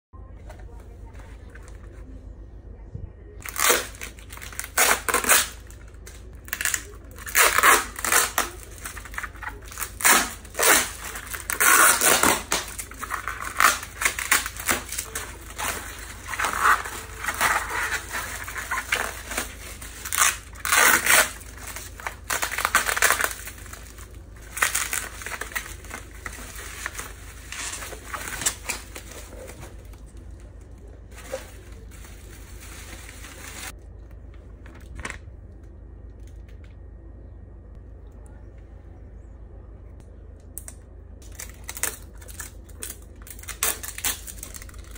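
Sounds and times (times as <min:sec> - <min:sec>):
plastic packaging being torn: 0:03.4 - 0:33.8, 0:40.6 - 0:44.9
bubble wrap crinkling: 0:03.4 - 0:35.2, 0:41.2 - 0:44.9.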